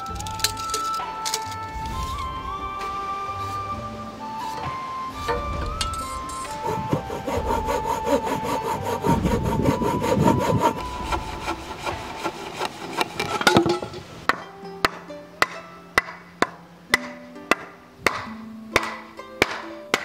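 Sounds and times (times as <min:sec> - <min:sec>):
hand saw cutting wood: 0:00.0 - 0:16.2
sharp knocks: 0:10.0 - 0:20.0.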